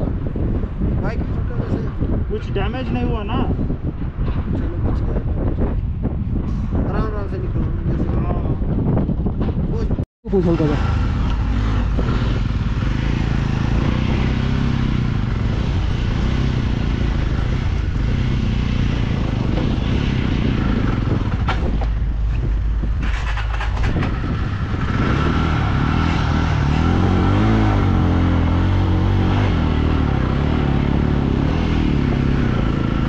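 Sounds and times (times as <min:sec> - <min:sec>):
motorcycle engine running: 0:10.3 - 0:33.0
sharp clicks and rattles: 0:20.8 - 0:24.8.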